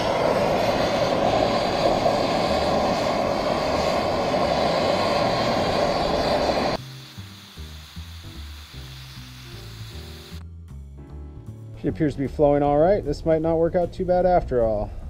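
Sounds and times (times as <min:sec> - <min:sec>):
gas torch hissing: 0:00.0 - 0:10.4.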